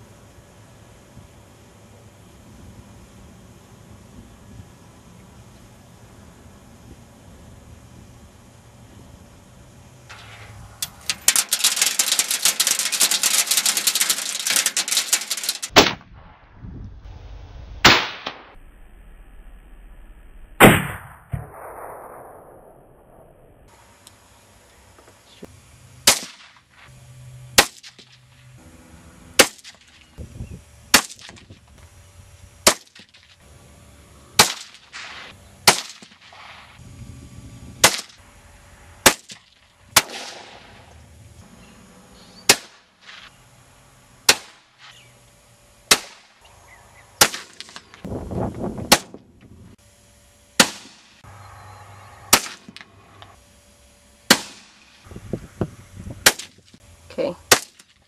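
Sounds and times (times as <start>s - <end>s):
rifle shots cracking: 11.0s - 16.0s, 26.0s - 26.6s, 27.6s - 28.1s, 29.4s - 29.8s, 30.9s - 31.4s, 32.6s - 33.2s, 34.4s - 36.6s, 37.8s - 38.2s, 39.0s - 40.8s, 42.5s - 42.9s, 44.3s - 44.7s, 45.9s - 46.3s, 47.2s - 48.0s, 48.9s - 49.2s, 50.6s - 51.0s, 52.3s - 52.9s, 54.3s - 54.8s.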